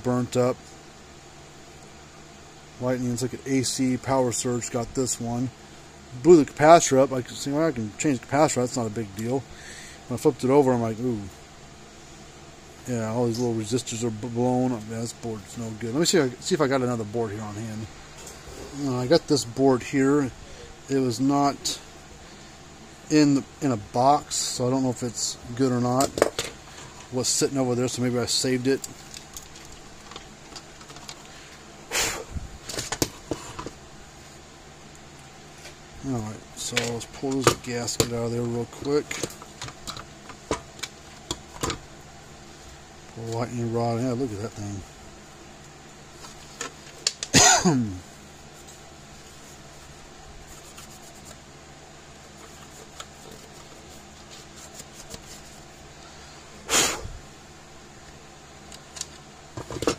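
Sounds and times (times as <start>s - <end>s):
person coughing: 47.3s - 48.0s.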